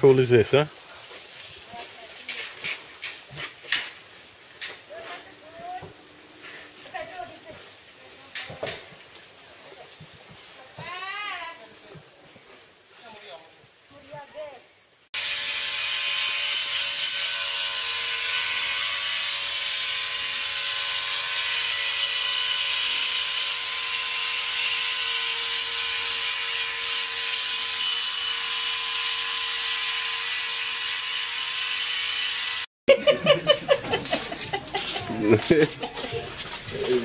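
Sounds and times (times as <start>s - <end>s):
electric hair clipper buzzing: 15.2s - 32.7s.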